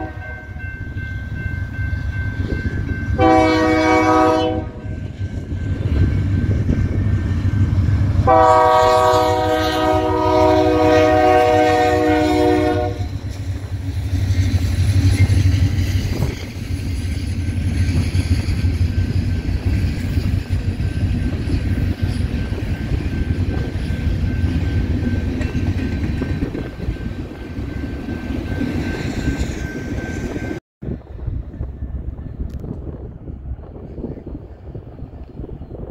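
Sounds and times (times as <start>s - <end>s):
locomotive air horn: 0.0s - 0.6s, 3.2s - 5.0s, 8.2s - 13.2s
train rumbling past: 0.0s - 35.9s.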